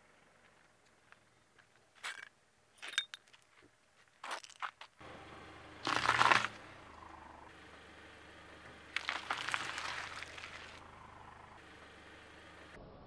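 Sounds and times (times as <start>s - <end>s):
car engine hum: 5.0s - 13.0s
tyre crushing fruit crunch: 5.8s - 6.6s, 9.0s - 10.8s
tyre squashing bananas squelch: 5.8s - 6.6s, 9.0s - 10.8s.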